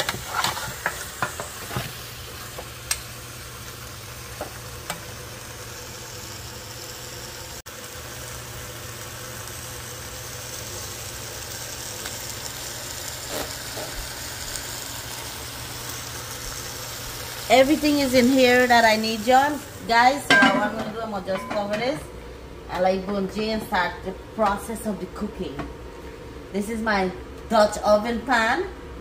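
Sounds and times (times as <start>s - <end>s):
meat sizzling in a pot: 0.0s - 21.7s.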